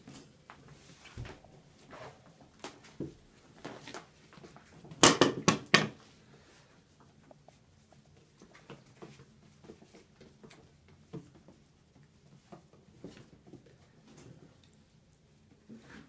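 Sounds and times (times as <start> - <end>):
rustling: 0.0 - 5.0
puppies scuffling: 0.0 - 16.0.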